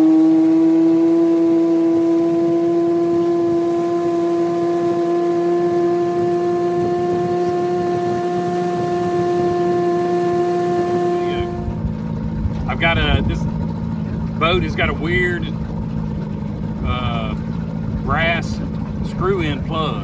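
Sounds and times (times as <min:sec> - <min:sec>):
outboard motor droning: 0:00.0 - 0:20.0.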